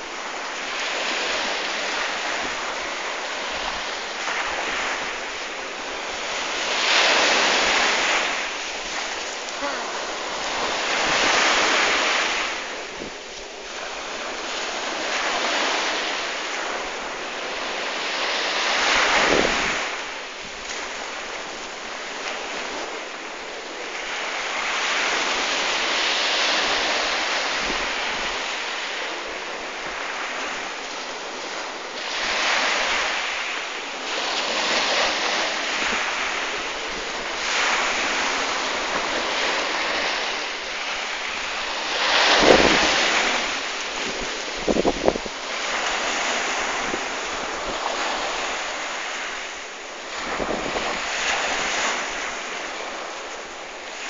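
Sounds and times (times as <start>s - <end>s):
wind gust on microphone: 0.0s - 23.0s, 34.0s - 53.3s
waves washing in: 0.0s - 54.0s.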